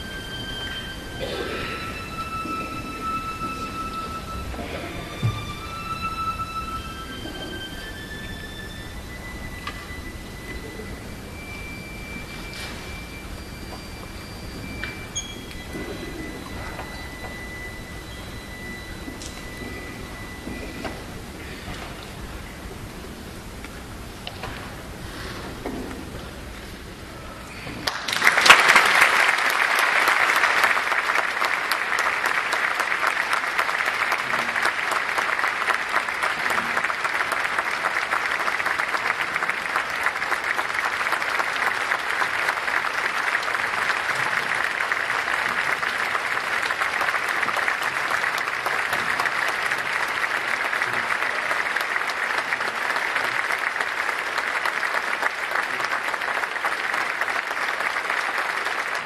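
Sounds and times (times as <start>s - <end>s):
audience applauding: 0.0s - 21.6s, 27.7s - 59.0s.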